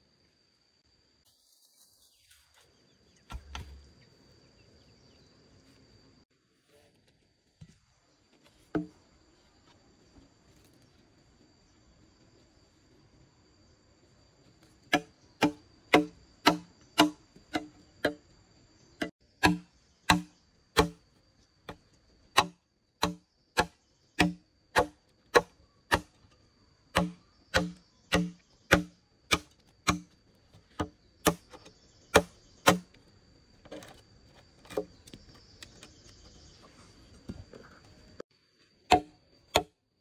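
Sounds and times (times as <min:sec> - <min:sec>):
tool striking wood: 0:08.7 - 0:08.9, 0:14.9 - 0:18.2, 0:19.0 - 0:21.0, 0:22.4 - 0:26.2, 0:26.9 - 0:30.1, 0:30.8 - 0:32.9, 0:38.9 - 0:39.8.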